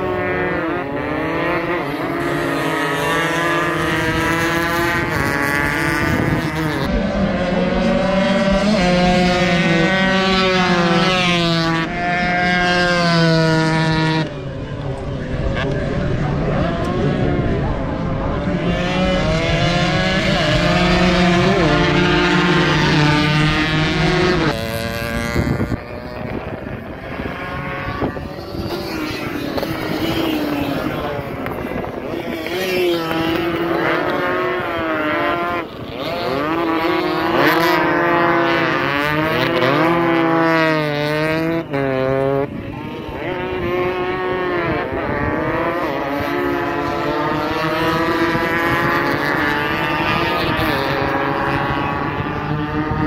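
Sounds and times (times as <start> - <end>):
racing motorcycles buzzing: 0.0 - 53.0.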